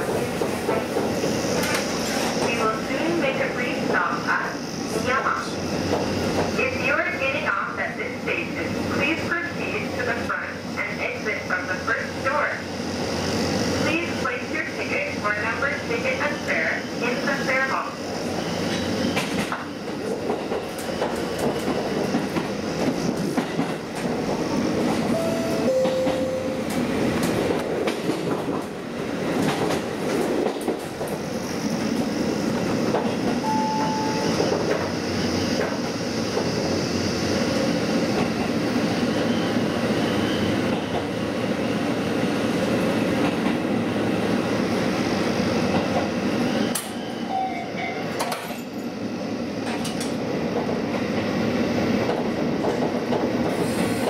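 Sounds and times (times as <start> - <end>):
train engine and wheels rumbling: 0.0 - 54.0
brief high tones: 25.2 - 26.7, 33.5 - 34.4.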